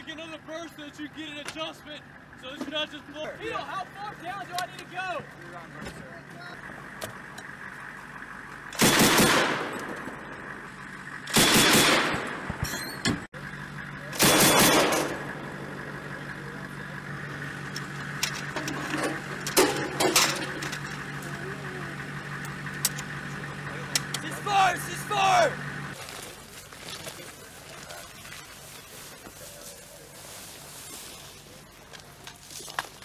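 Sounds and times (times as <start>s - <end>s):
vehicle engine idling: 0.0s - 33.0s
machine gun bursts: 8.8s - 9.8s, 11.3s - 12.4s, 14.2s - 15.2s.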